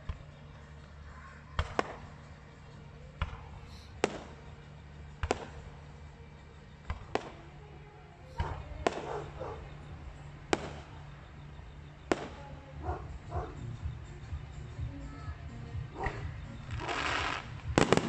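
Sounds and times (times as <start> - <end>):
steady low hum: 0.0 - 18.0
fireworks bursting: 1.5 - 12.8, 16.1 - 18.0.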